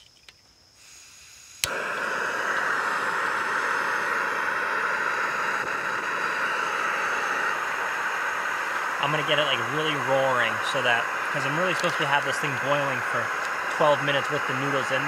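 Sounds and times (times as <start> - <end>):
gas stove burner hissing: 0.7 - 15.0
stove ignition click: 1.5 - 2.8, 13.2 - 14.4.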